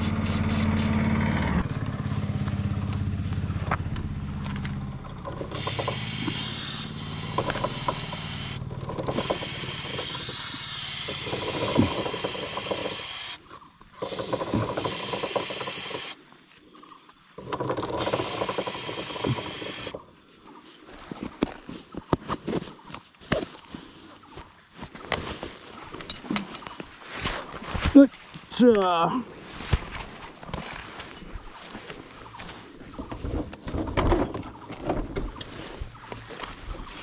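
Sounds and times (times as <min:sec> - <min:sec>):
aerosol spray hissing: 0:00.0 - 0:00.9, 0:05.5 - 0:13.4, 0:14.9 - 0:16.2, 0:18.2 - 0:19.9
engine running: 0:00.0 - 0:16.2, 0:17.4 - 0:20.0.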